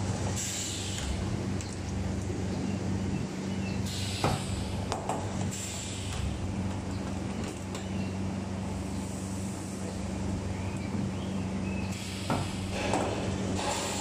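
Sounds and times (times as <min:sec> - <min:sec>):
welding hiss: 0:11.9 - 0:14.0.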